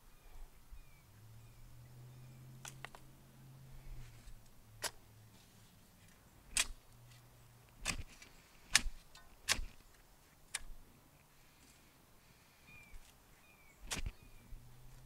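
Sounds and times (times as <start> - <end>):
spade chopping into soil: 4.8 - 5.0, 6.5 - 6.8, 7.8 - 9.8, 13.8 - 14.2.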